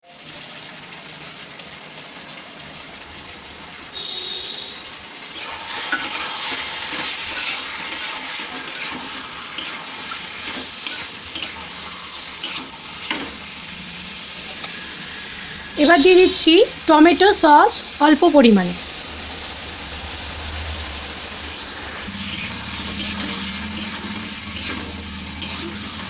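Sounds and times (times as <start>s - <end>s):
chicken sizzling in a pan: 0.0s - 26.0s
metal spatula scraping a pan: 5.3s - 13.6s, 21.6s - 26.0s.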